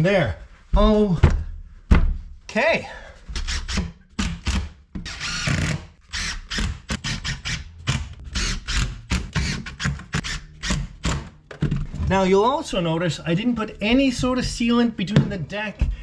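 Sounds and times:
cordless drill drilling into wood: 0:05.1 - 0:07.6, 0:08.3 - 0:10.8.

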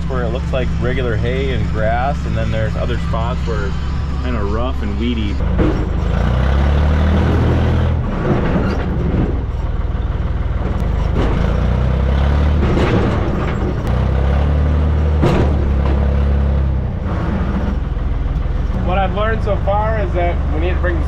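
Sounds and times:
backhoe engine droning: 0:00.0 - 0:21.0
machine knocks and rattles: 0:05.4 - 0:06.4, 0:07.0 - 0:09.8, 0:10.6 - 0:16.4.

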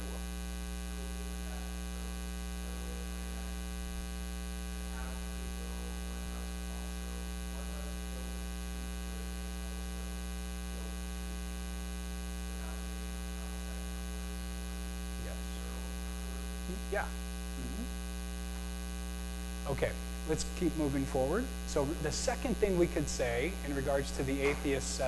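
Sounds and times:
electrical mains hum: 0:00.0 - 0:25.0
faint distant voice: 0:04.9 - 0:08.4.

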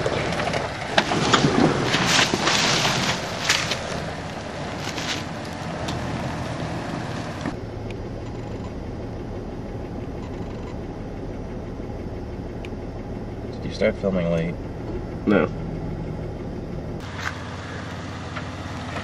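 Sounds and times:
distant vehicle engine hum: 0:00.0 - 0:19.0
off-road vehicle engine under load: 0:00.0 - 0:19.0.

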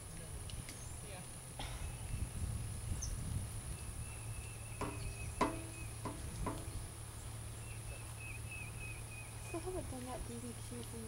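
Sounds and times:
low hum: 0:04.4 - 0:09.6
high insect chirring: 0:04.8 - 0:07.1.

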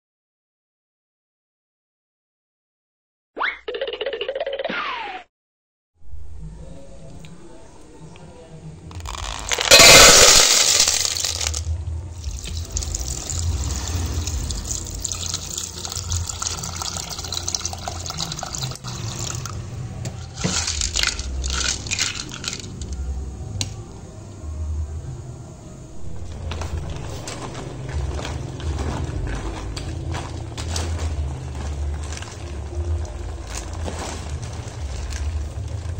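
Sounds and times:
snail shells clattering into pot: 0:08.9 - 0:11.7, 0:20.3 - 0:23.0
water sloshing in a pot: 0:12.2 - 0:19.6.

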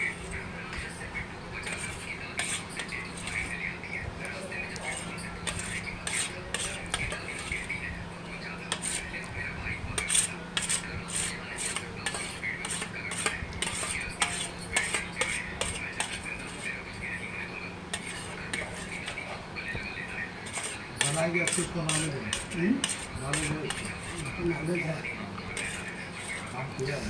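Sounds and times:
spoon scraping steel plate: 0:01.6 - 0:03.6, 0:04.7 - 0:07.8, 0:08.7 - 0:09.1, 0:10.0 - 0:16.7, 0:17.9 - 0:19.3, 0:20.4 - 0:24.9, 0:25.5 - 0:27.0.

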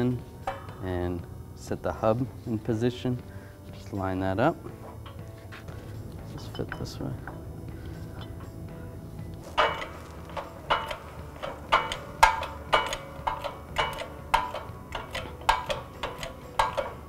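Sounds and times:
shop press metallic clanks: 0:00.0 - 0:01.0, 0:06.3 - 0:07.4, 0:09.4 - 0:17.0.

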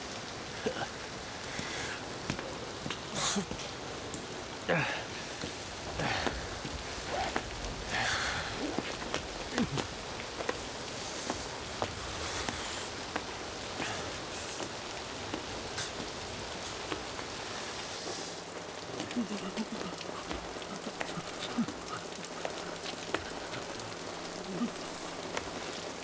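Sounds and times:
drops and drips ticking: 0:00.0 - 0:26.0
steady rain falling: 0:00.0 - 0:26.0.

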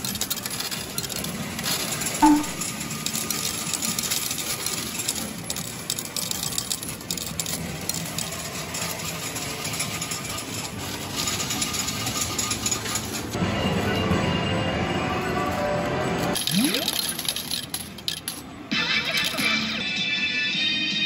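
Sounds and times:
metal medals clinking: 0:00.0 - 0:13.3, 0:16.3 - 0:19.6
machine mechanical rattle: 0:00.0 - 0:13.4, 0:16.3 - 0:19.6.

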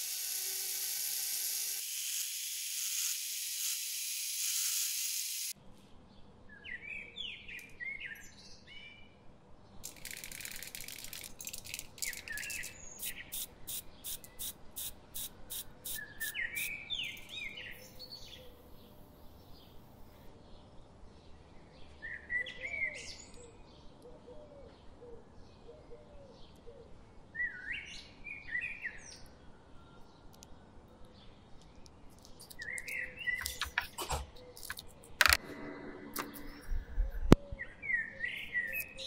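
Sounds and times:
rotary tool grinding steel: 0:00.0 - 0:05.6
spray paint can rattling: 0:09.8 - 0:16.7
birds chirping: 0:15.8 - 0:20.7, 0:28.3 - 0:39.0.

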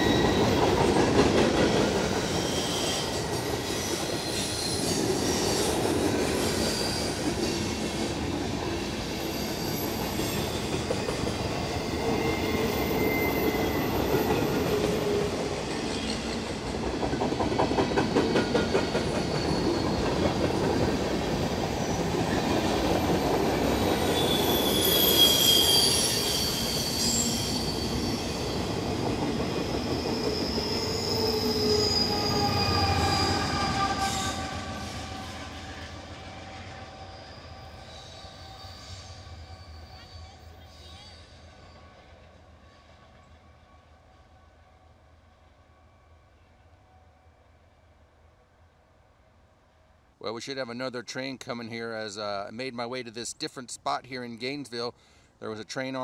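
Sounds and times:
train wheels squealing: 0:00.0 - 0:08.1, 0:08.7 - 0:16.7, 0:17.6 - 0:44.4
train wheels rumbling on rail: 0:00.0 - 0:43.7.

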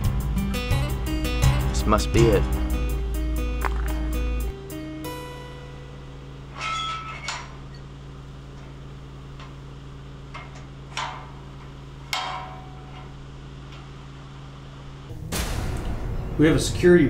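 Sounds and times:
low hum: 0:00.0 - 0:17.0
metal gate clanking: 0:06.4 - 0:07.9, 0:10.3 - 0:13.8.

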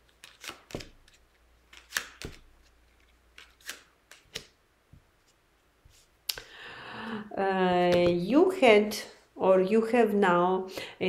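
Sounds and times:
cards snapping and tapping on table: 0:01.7 - 0:02.5, 0:03.4 - 0:04.5.

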